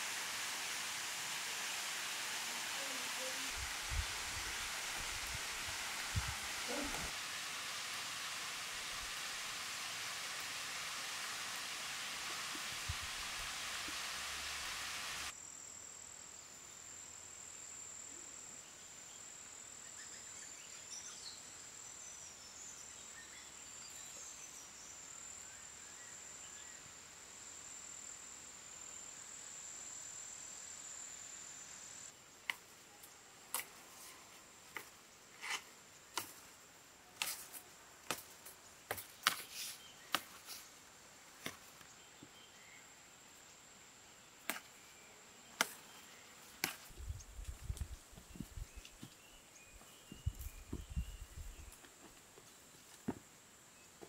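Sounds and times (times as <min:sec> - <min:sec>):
insect drone: 0:00.0 - 0:32.4.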